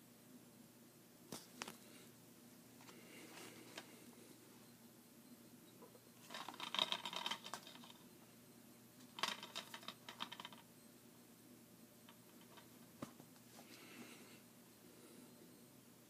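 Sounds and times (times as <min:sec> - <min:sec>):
plastic cases clicking and scraping: 0:06.2 - 0:08.0.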